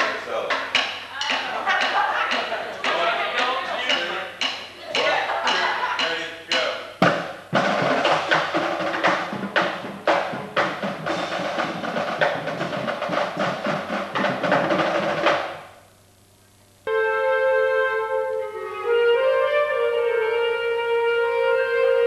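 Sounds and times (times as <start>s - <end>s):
marching snare and tenor drums: 0.0s - 15.7s.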